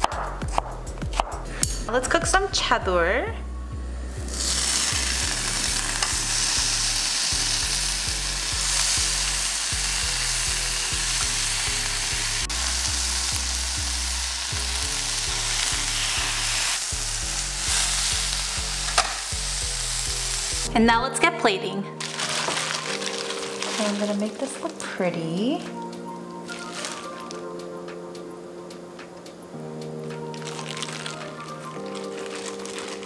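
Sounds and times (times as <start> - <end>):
soft background music: 0.0 - 33.0
meat sizzling in a pan: 4.2 - 20.7, 22.0 - 24.8, 26.5 - 27.3, 30.3 - 33.0.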